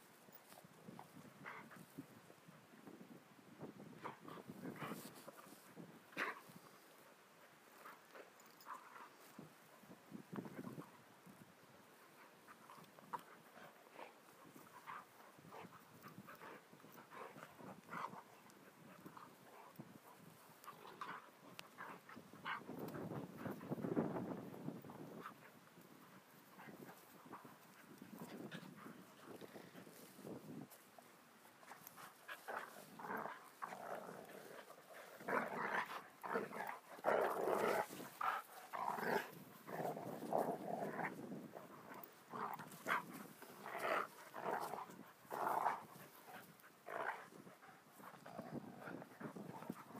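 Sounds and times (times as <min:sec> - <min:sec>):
dogs play-fighting noises: 0:00.1 - 0:02.4, 0:03.9 - 0:49.9
dogs growling and grunting: 0:32.3 - 0:49.9.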